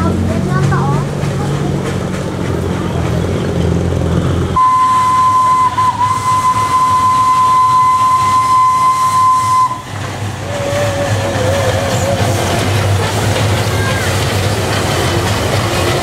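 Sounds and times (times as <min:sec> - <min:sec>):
lower faint whistle wavering: 0:04.6 - 0:09.9
steam locomotive whistle: 0:04.6 - 0:12.6.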